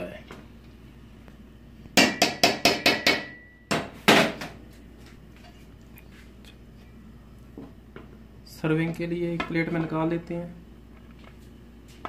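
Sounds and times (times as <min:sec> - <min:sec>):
metal spoon knocking on pot: 0:02.0 - 0:03.8.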